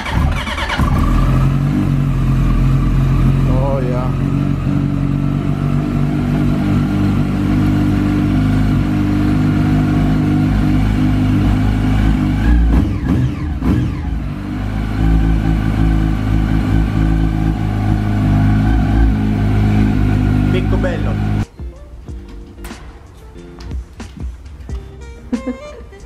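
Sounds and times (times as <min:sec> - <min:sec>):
motorcycle engine idling: 0:00.0 - 0:25.7.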